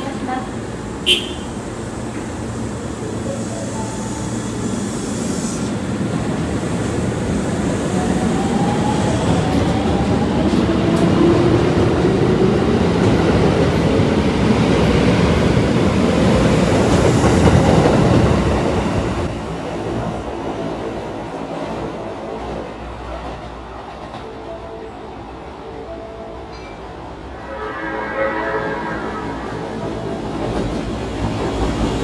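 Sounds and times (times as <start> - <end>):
train wheels rumbling: 0.0 - 24.6, 26.6 - 32.0.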